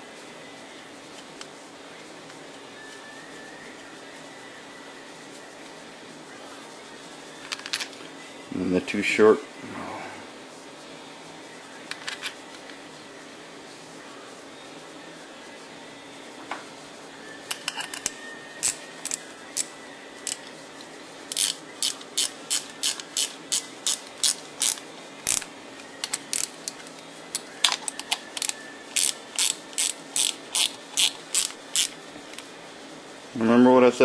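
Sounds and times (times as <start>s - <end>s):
ratchet clicking: 17.5s - 20.5s, 21.3s - 32.4s.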